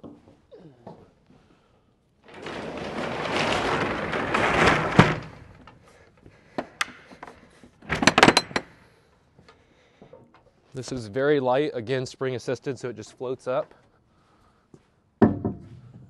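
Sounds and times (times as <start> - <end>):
roll-up door rattling down: 2.2 - 5.9, 7.8 - 8.8
roll-up door slamming shut: 2.2 - 5.9, 7.8 - 8.8.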